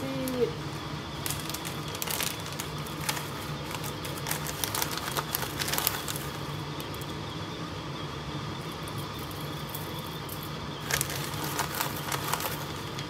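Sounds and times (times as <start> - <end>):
gas burner hum: 0.0 - 13.0
sharp crackles: 1.1 - 7.1.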